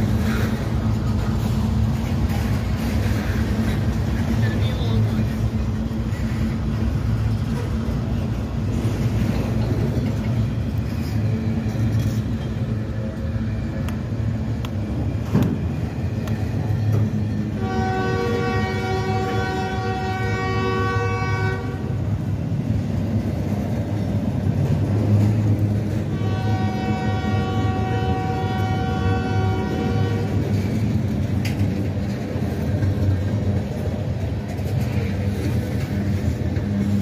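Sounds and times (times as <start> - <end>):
low train rumble: 0.0 - 37.0
locomotive horn blasts: 17.5 - 22.0, 26.0 - 30.5.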